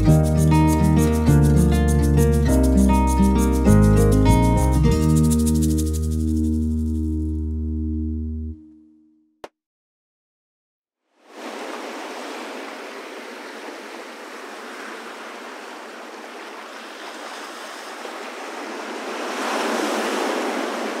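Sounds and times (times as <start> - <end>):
ocean surf washing in: 11.2 - 21.0.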